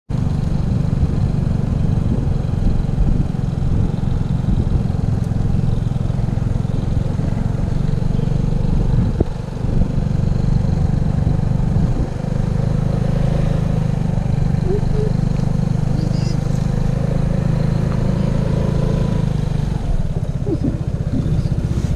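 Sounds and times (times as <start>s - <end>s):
scooter engine running: 0.1s - 21.9s
wind buffeting microphone: 1.0s - 5.8s, 8.8s - 10.3s, 10.9s - 12.4s.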